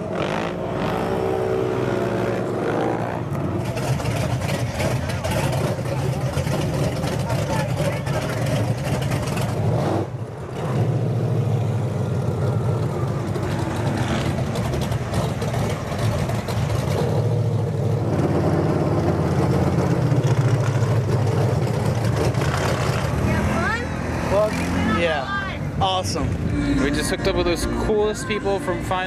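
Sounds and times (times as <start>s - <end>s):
truck engine running: 2.0s - 24.7s.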